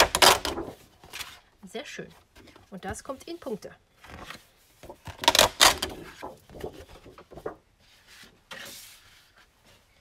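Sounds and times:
paper rustling and sliding: 0:00.0 - 0:01.4, 0:04.0 - 0:10.0.

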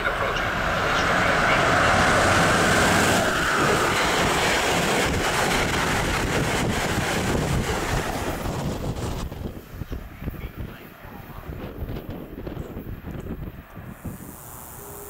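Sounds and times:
wind buffeting microphone: 0:00.0 - 0:14.4
train passing with rushing roar: 0:00.0 - 0:15.0.

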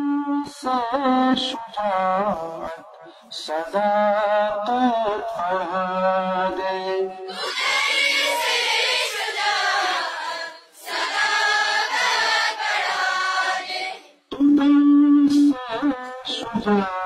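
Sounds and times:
man singing through microphone: 0:00.0 - 0:07.3, 0:15.3 - 0:17.0
children's chorus singing: 0:07.3 - 0:14.2.

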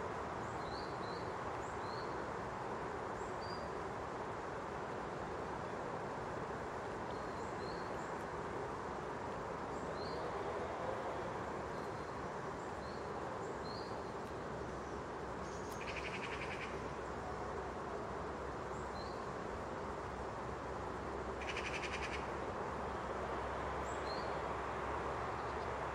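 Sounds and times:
outdoor background noise: 0:00.0 - 0:25.9
small birds chirping: 0:15.4 - 0:16.8.

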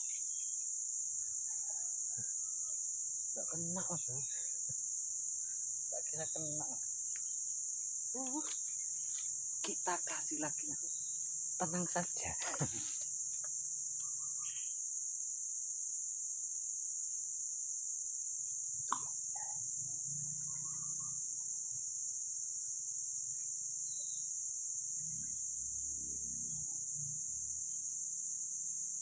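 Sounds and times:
insects droning: 0:00.0 - 0:29.0.

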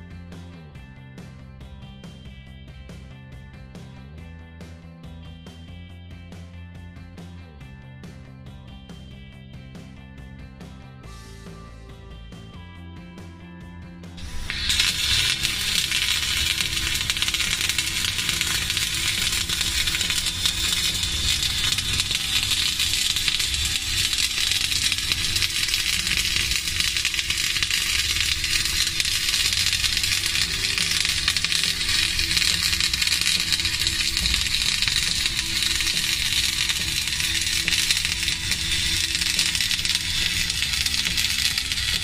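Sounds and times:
welding arc crackling and sizzling: 0:14.2 - 0:42.0.

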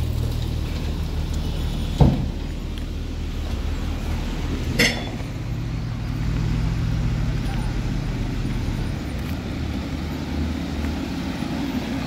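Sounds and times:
diesel construction engine running: 0:00.0 - 0:12.0
heavy thump: 0:02.0 - 0:02.4
sharp metal clank: 0:04.8 - 0:05.2.

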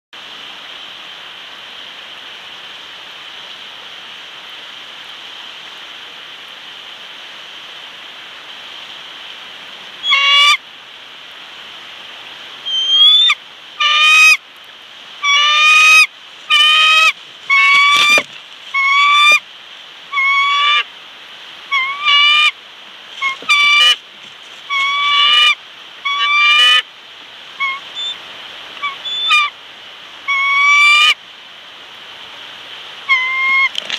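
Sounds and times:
steady hiss: 0:00.2 - 0:33.9
eagle high piping calls: 0:10.0 - 0:10.6, 0:12.7 - 0:14.4, 0:15.2 - 0:19.4, 0:20.1 - 0:20.8, 0:21.7 - 0:22.6, 0:23.2 - 0:24.0, 0:24.7 - 0:26.8, 0:27.6 - 0:28.2, 0:28.8 - 0:29.5, 0:30.3 - 0:31.2, 0:33.1 - 0:33.7.

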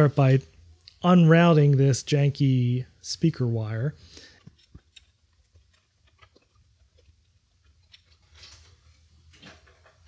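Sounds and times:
speaker wire clicks and ticks: 0:04.3 - 0:08.3.

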